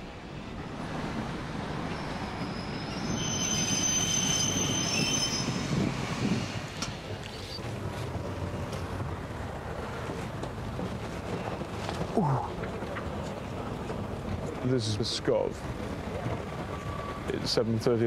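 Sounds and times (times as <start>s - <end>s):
passenger train rumbling: 0.0s - 18.0s
brake and wheel squeal: 1.9s - 6.5s.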